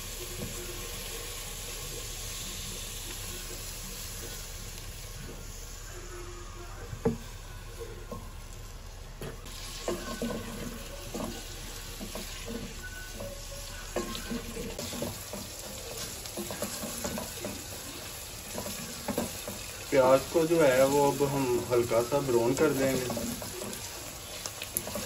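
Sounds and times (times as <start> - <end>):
onions sizzling in oil: 0.0 - 25.0
wooden spoon scraping pot: 9.5 - 25.0.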